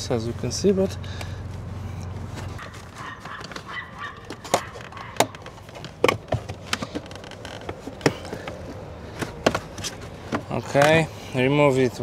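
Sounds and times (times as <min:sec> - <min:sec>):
plastic trim clicking and knocking: 0:03.2 - 0:11.0.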